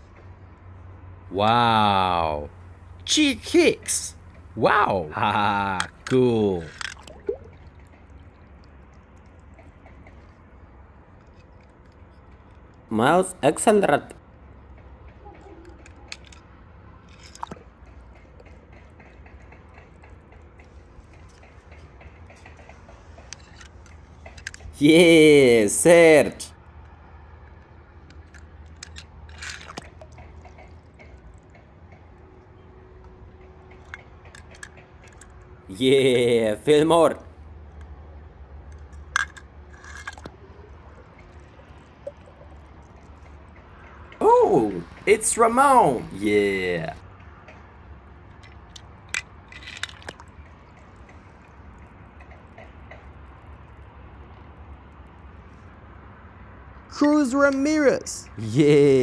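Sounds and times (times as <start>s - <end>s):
low background hum: 0.0s - 59.0s
toy cars clicking: 5.3s - 10.3s, 15.6s - 16.5s, 20.6s - 24.8s, 28.1s - 31.6s, 33.7s - 35.4s, 38.6s - 42.4s, 48.3s - 51.2s
toy car clicks: 5.7s - 7.2s, 23.2s - 24.7s, 28.1s - 30.6s, 38.7s - 40.4s, 48.4s - 50.3s.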